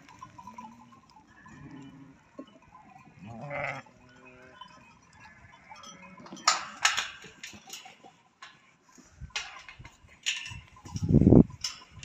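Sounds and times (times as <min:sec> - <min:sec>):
faint livestock bleat: 0:03.2 - 0:04.8.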